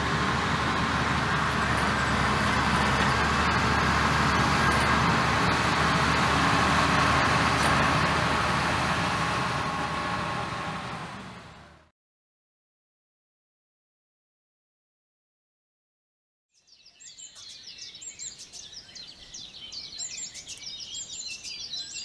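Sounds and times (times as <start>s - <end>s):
motorway traffic noise: 0.0s - 11.9s.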